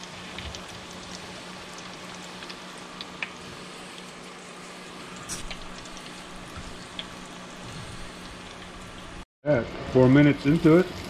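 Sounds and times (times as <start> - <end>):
fish deep-frying in hot oil: 0.0 - 11.0.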